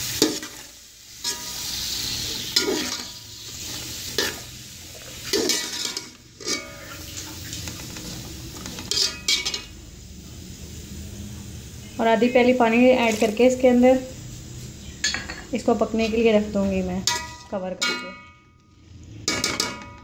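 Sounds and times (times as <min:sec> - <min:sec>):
vegetables sizzling in oil: 0:00.0 - 0:20.0
metal spoon scraping pot: 0:05.2 - 0:09.7.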